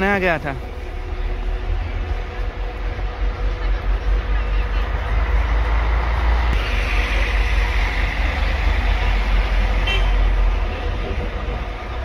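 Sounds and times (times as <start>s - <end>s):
road traffic passing: 0.0s - 12.0s
car horn toot: 9.8s - 11.0s.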